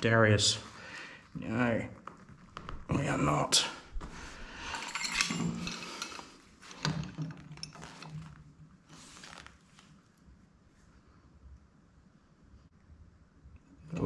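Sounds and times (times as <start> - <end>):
metal hand tools clinking: 4.5 - 6.4.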